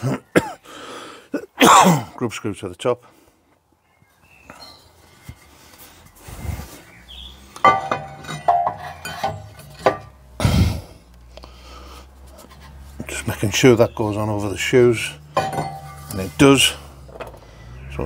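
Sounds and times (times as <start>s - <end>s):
metal clinks and knocks: 7.6s - 10.3s, 15.2s - 17.5s.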